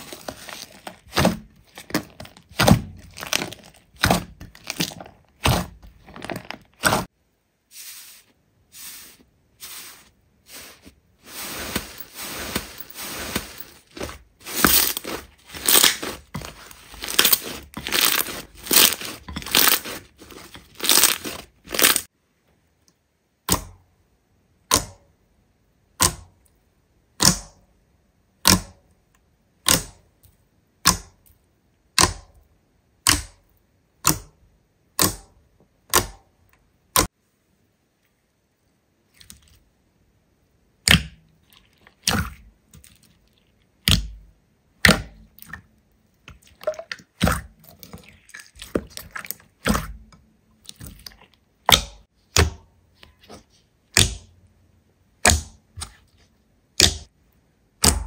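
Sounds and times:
sticky slime crackles: 0.0 - 7.1, 10.5 - 22.1
sharp slime pops: 57.8 - 58.0.

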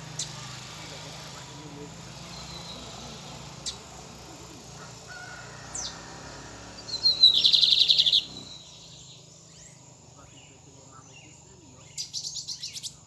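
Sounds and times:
fast high bird trill: 4.7 - 11.2
bird singing high notes: 6.7 - 11.3.

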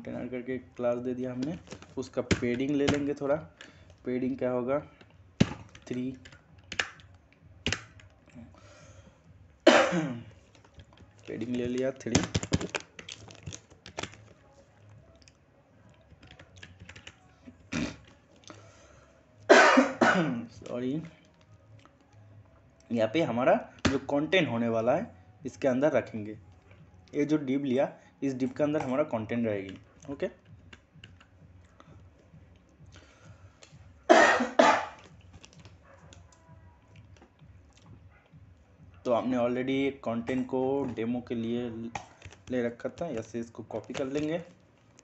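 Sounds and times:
computer keyboard typing: 1.3 - 4.0, 4.9 - 8.3, 10.4 - 14.4, 15.0 - 18.6, 41.0 - 45.0
person coughing: 9.7 - 10.3, 19.5 - 20.5, 34.1 - 35.0.

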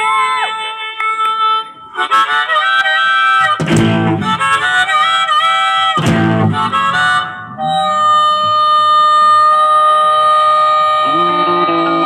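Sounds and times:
blues harmonica: 0.5 - 12.0
live band heavy accents: 3.4 - 9.7.

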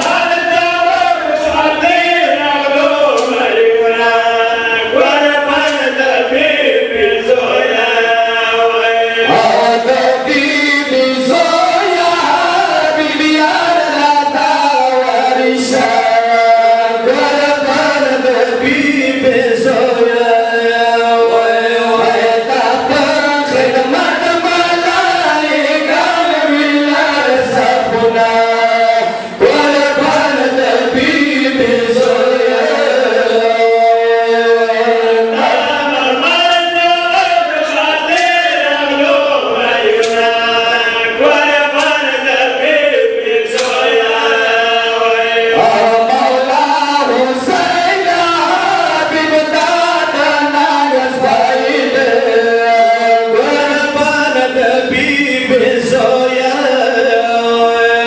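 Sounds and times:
men chanting a lament in unison: 0.0 - 58.0.

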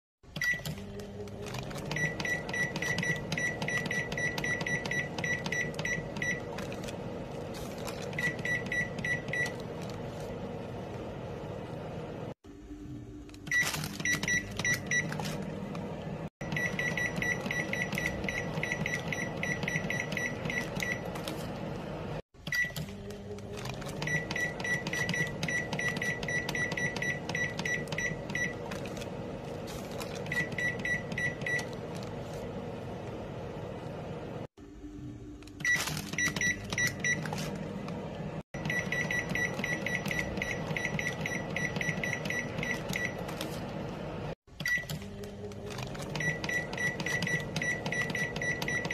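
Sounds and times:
microwave short high beeps: 0.4 - 0.8, 1.8 - 6.6, 8.1 - 9.6, 16.4 - 21.2, 22.5 - 22.8, 24.0 - 28.7, 30.1 - 31.8, 35.6 - 37.6, 38.6 - 43.4, 44.6 - 45.0, 46.1 - 48.9.

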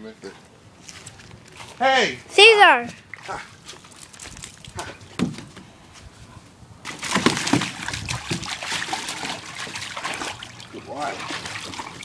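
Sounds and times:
water splashing in a plastic pool: 2.6 - 5.6, 6.8 - 12.0.

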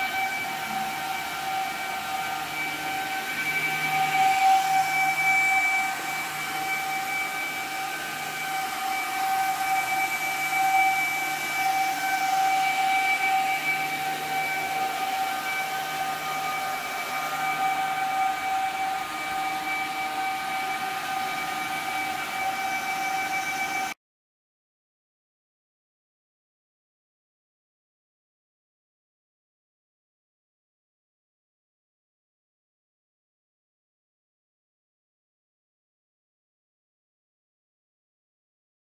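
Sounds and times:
cooling fans whining: 0.0 - 23.9.

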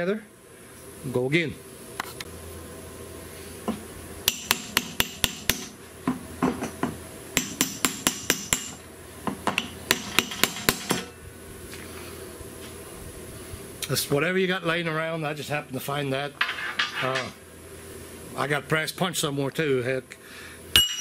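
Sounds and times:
hammer tapping metal drift: 4.2 - 8.8, 9.5 - 11.2, 20.8 - 21.0.

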